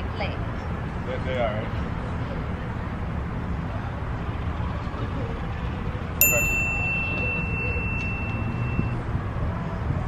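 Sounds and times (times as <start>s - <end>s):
bright bell chime: 6.2s - 9.0s.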